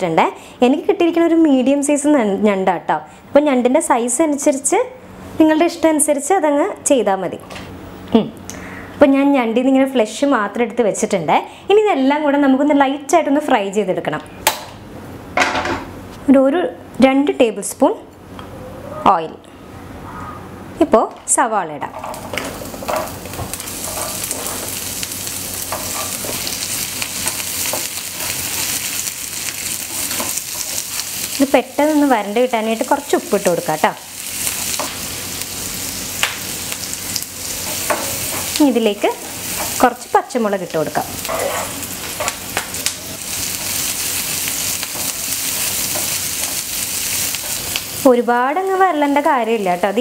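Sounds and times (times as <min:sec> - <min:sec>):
spatula scraping pan: 0:22.0 - 0:24.8, 0:25.6 - 0:26.6, 0:41.2 - 0:42.4
onions sizzling in oil: 0:22.0 - 0:50.0.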